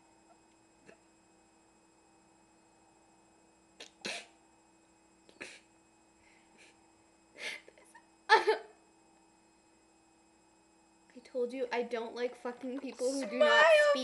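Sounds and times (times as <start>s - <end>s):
girl's stifled laughter: 8.3s - 8.8s.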